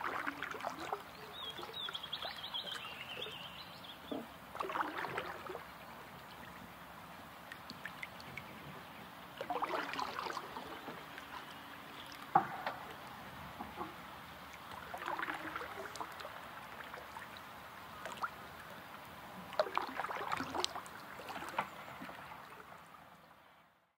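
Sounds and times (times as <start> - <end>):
paddle splashing and dripping: 0.0 - 23.3
faint steady hiss: 5.4 - 23.7.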